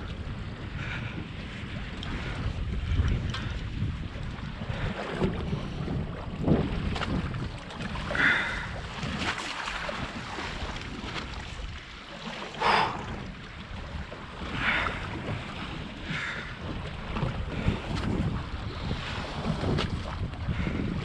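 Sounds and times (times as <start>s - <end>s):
water lapping against boat hull: 0.0s - 21.0s
wind buffeting microphone: 0.0s - 21.0s.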